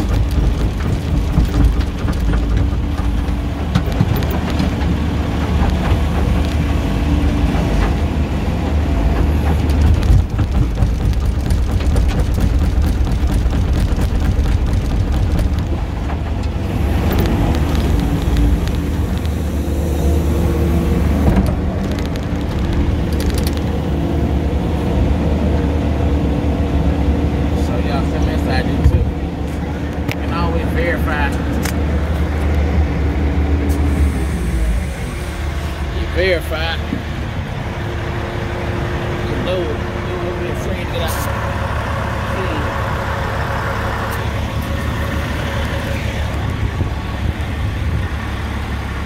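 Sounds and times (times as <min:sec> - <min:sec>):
short knocks: 0:00.0 - 0:18.9
diesel engine running: 0:00.0 - 0:49.0.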